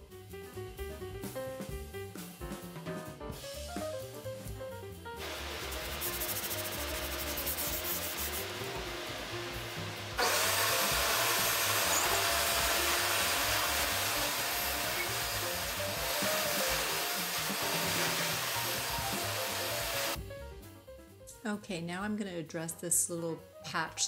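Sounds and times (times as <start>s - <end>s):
sandpaper rubbing on wood: 5.2s - 8.6s, 10.3s - 20.2s
shop vacuum running: 5.2s - 20.2s.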